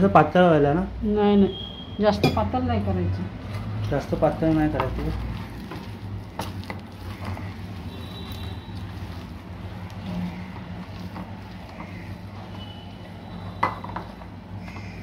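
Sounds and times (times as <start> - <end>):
hands kneading moist stuffing: 3.3 - 15.0.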